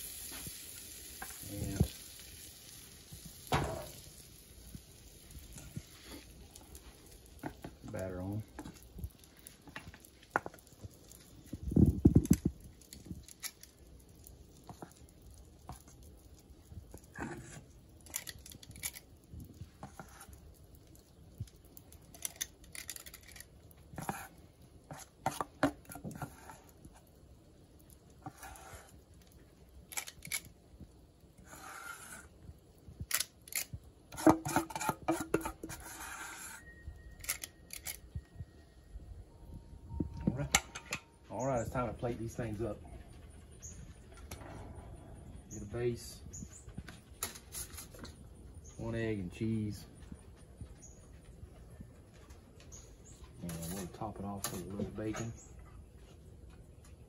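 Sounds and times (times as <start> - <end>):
metal spoon scraping bowl: 34.1 - 38.0.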